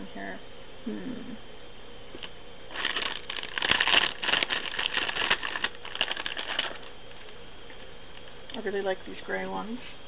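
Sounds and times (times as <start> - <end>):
plastic packaging crinkling: 2.2 - 7.4.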